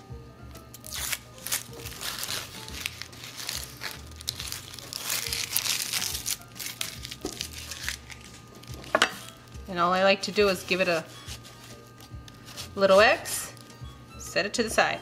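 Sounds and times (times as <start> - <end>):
background music: 0.0 - 15.0
onion skin crinkling and tearing: 0.7 - 13.8.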